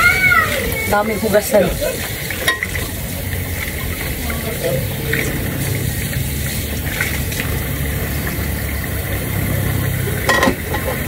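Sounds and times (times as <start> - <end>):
low motor hum: 0.0 - 11.0
dishes clattering: 2.4 - 2.9, 10.2 - 11.0.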